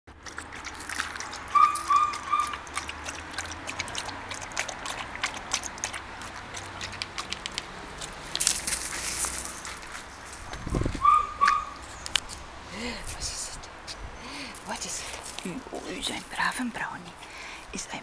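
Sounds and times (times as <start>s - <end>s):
dog lapping water: 0.1s - 8.4s.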